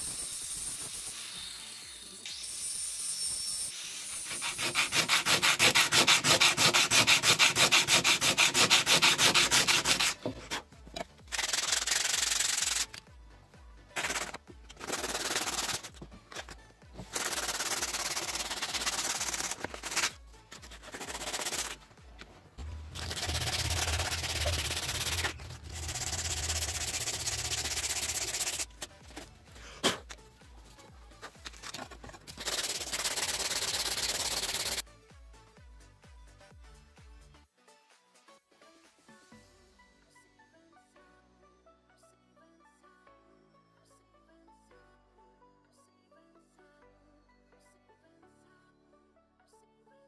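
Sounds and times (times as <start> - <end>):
sandpaper rubbing on wood: 3.8 - 10.7, 11.3 - 13.0, 14.0 - 21.8, 22.7 - 30.0, 31.2 - 34.8.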